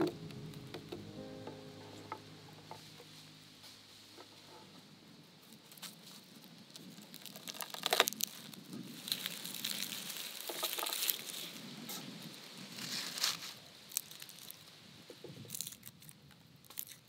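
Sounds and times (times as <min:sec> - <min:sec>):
garlic skins crackling and rustling: 0:05.6 - 0:11.6, 0:12.8 - 0:17.0.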